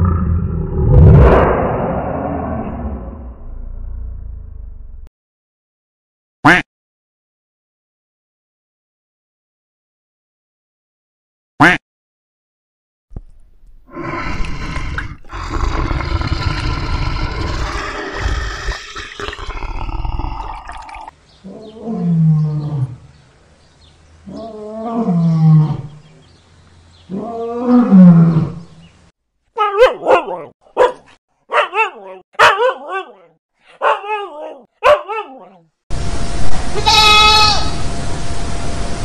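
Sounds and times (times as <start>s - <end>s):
bear roaring: 0.0s - 3.3s, 13.9s - 23.1s, 27.1s - 28.8s
lynx yowling: 29.6s - 30.5s, 31.6s - 35.7s
dog barking and yipping: 29.6s - 35.6s.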